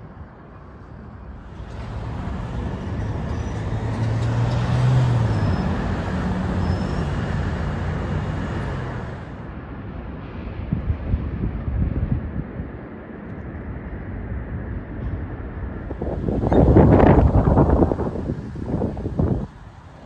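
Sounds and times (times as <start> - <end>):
vehicle driving past: 1.4 - 9.5.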